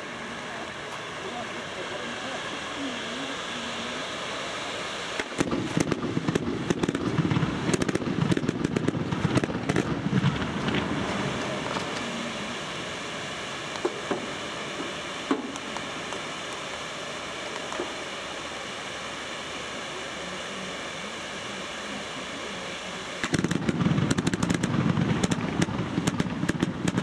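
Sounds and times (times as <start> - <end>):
steady hiss: 0.0 - 27.0
fireworks bangs and crackles: 4.8 - 18.2, 21.9 - 27.0.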